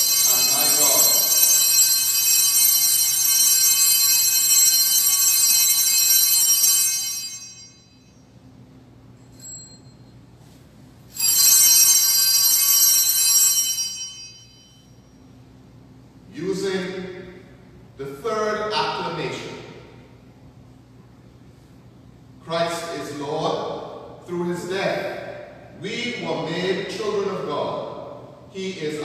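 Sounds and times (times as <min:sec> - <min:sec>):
altar bells jingling: 0:00.0 - 0:08.2, 0:11.1 - 0:15.2.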